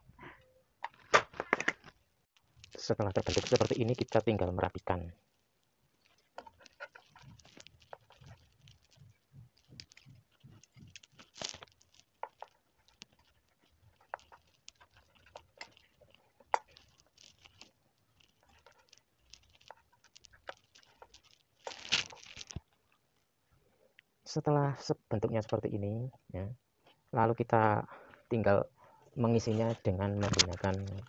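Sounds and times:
sheet metal clicking and crinkling: 6.0s - 23.0s.

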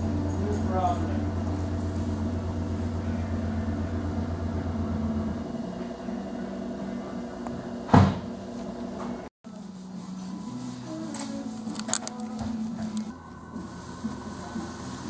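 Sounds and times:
machine hum: 0.0s - 10.7s, 11.5s - 15.0s.

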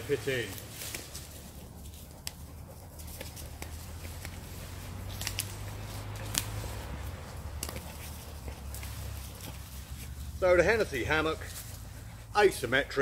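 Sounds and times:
sharp clicks: 6.2s - 6.6s.

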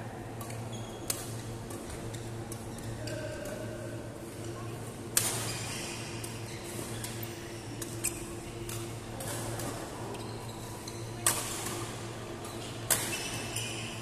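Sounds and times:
racquets hitting shuttlecock: 11.2s - 13.8s.

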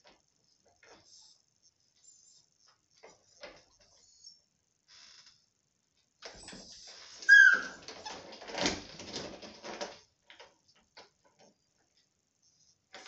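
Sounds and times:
puppy yelping: 7.3s - 7.8s.

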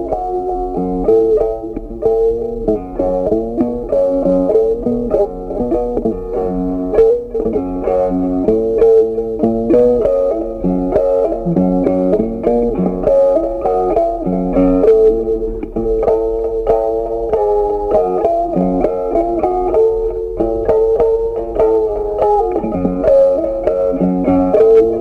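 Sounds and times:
instrumental background music: 0.0s - 25.0s.

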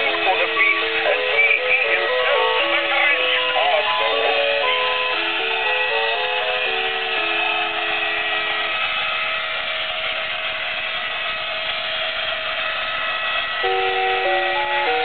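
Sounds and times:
simple tune: 0.0s - 7.0s, 13.6s - 15.0s.

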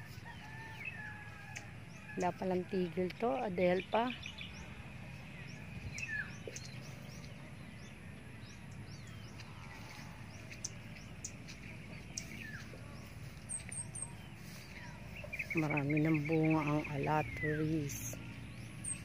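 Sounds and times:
low background rumble: 0.0s - 19.0s
bird chirps and calls: 5.4s - 19.0s.

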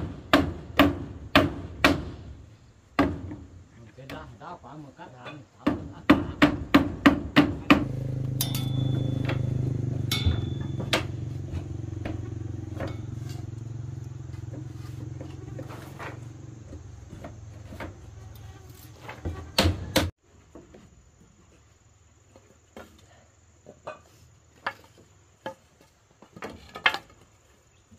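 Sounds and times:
engine hum: 7.2s - 19.3s.

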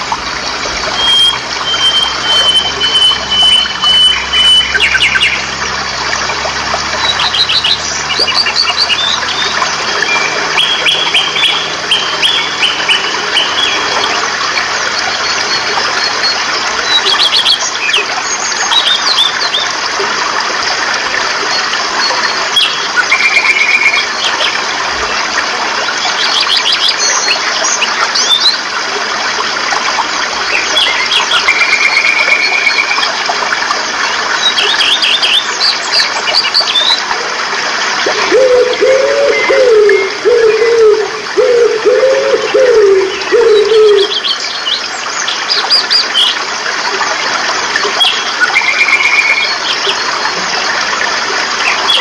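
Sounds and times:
birds chirping: 0.0s - 5.7s, 38.0s - 46.4s
stream rushing over boulders: 0.0s - 52.0s.

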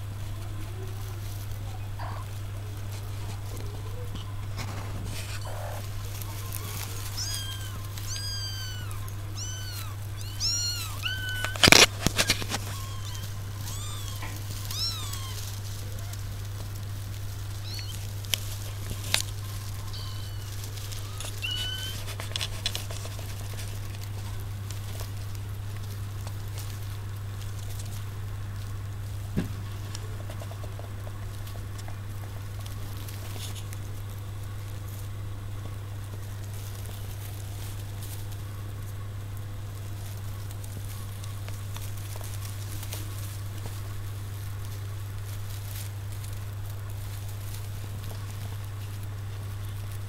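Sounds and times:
kittens mewing: 0.9s - 26.6s.

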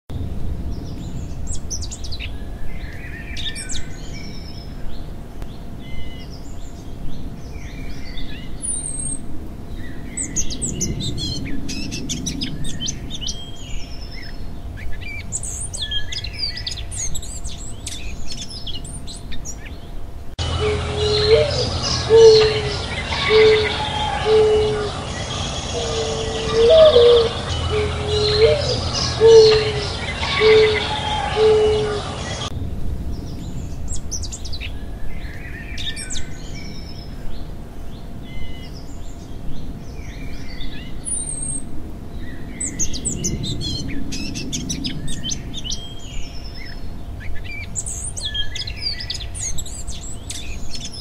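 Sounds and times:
songbirds chirping and trilling: 0.1s - 51.0s
low hum: 12.1s - 39.9s.

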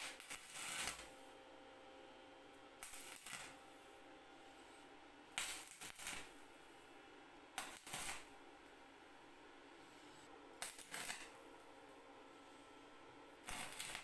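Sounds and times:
welding arc crackling: 0.0s - 1.2s, 2.8s - 3.6s, 5.3s - 6.5s, 7.6s - 8.4s, 10.6s - 11.4s, 13.4s - 14.0s.

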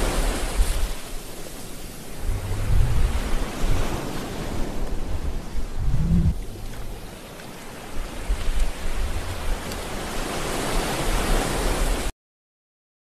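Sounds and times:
surf washing on shore: 0.0s - 12.1s
wind buffeting microphone: 1.9s - 11.4s.

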